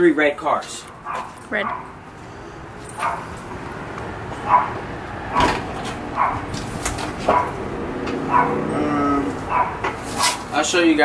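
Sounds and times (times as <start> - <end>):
dog barking: 1.0 - 2.0, 3.0 - 3.3, 4.4 - 5.6, 6.2 - 6.5, 7.2 - 7.6, 8.2 - 8.7, 9.5 - 10.4.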